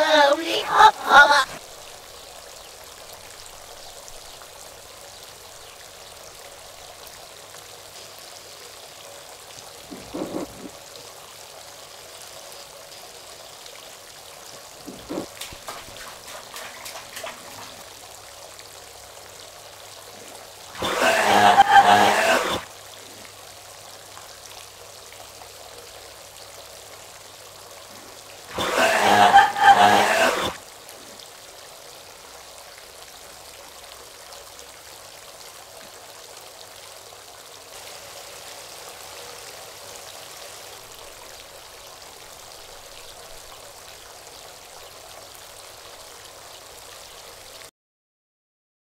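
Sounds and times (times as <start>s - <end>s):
bathwater trickling: 9.7s - 11.0s, 14.5s - 22.7s.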